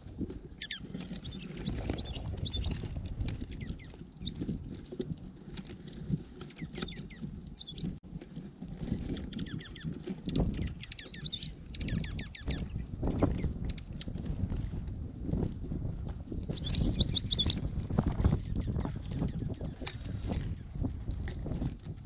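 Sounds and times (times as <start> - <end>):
wind rumble on microphone: 0.0 - 22.0
songbirds chirping: 6.6 - 13.9.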